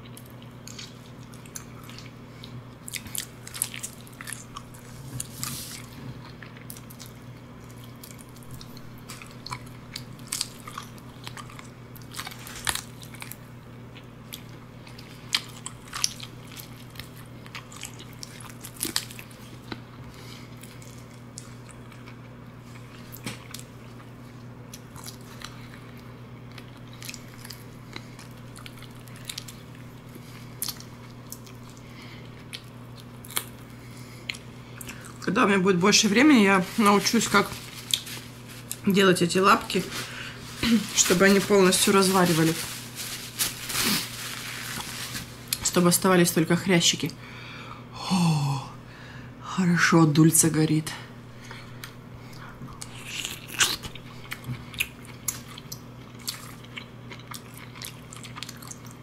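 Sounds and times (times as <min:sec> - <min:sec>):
crunchy eating and chewing: 0:00.0 - 0:35.3, 0:36.1 - 0:39.0, 0:39.6 - 0:45.8, 0:51.4 - 0:59.0.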